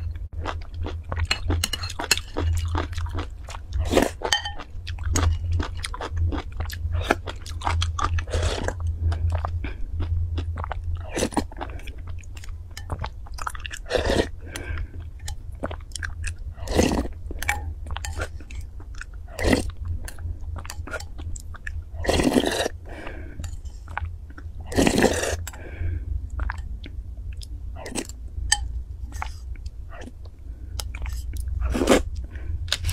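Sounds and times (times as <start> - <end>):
bites and slurps: 20.6 - 22.8, 23.4 - 25.6.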